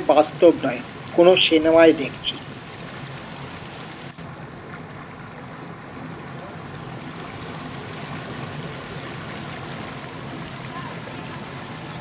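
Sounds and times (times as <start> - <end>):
river rushing over stones: 0.0 - 12.0.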